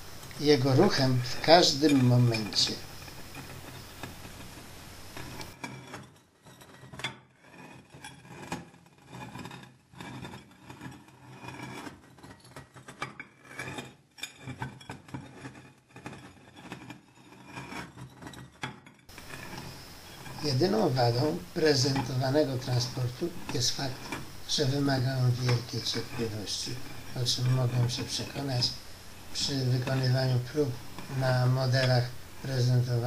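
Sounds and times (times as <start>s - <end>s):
bowl rim grinding on sand: 0.0s - 5.7s, 7.4s - 12.0s, 19.1s - 33.0s.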